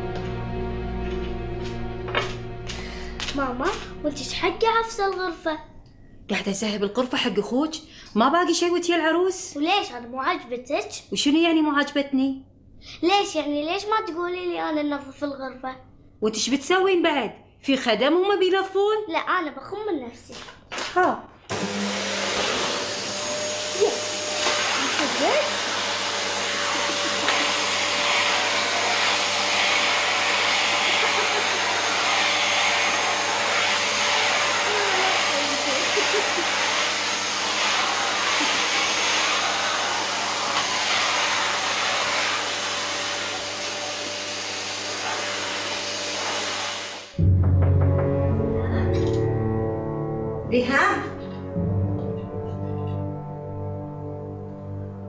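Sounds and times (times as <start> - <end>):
vacuum cleaner running: 0.0 - 4.1, 21.5 - 47.3.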